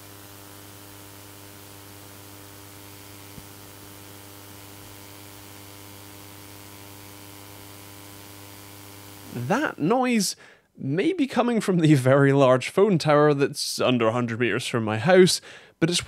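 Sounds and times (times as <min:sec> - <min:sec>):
electrical hum with hiss: 0:00.0 - 0:11.0.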